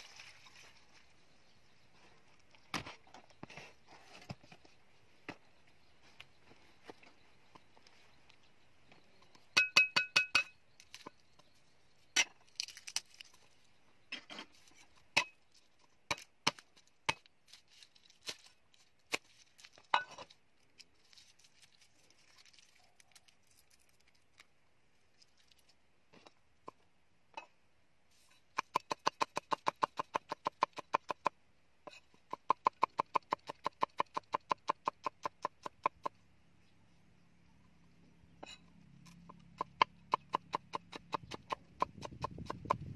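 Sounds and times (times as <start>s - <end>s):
cleaver chopping on wooden block: 39.5s - 42.9s.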